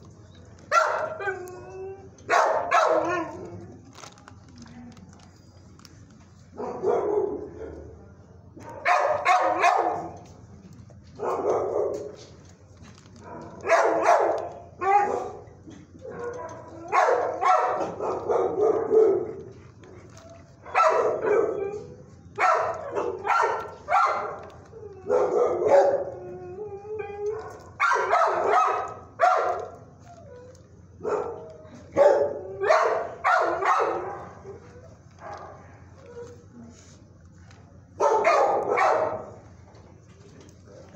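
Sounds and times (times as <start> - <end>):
dogs barking and howling: 0.7 - 3.6, 13.2 - 36.4, 38.0 - 39.4.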